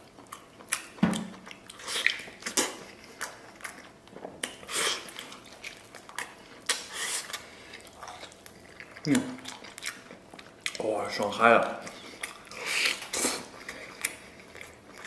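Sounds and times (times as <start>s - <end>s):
person chewing meat: 0.0s - 15.0s
wet lip smacks and mouth clicks: 0.2s - 10.8s.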